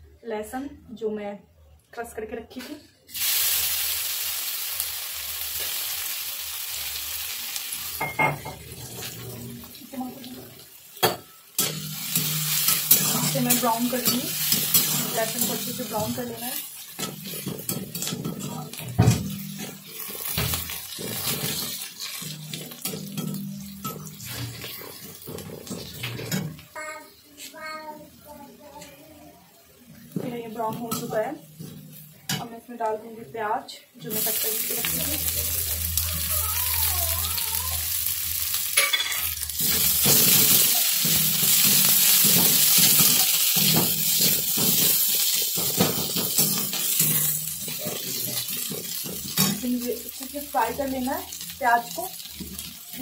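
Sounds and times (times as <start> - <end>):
garlic sizzling in oil: 3.1 - 26.7, 34.0 - 53.0
metal spatula scraping a pan: 11.1 - 26.5.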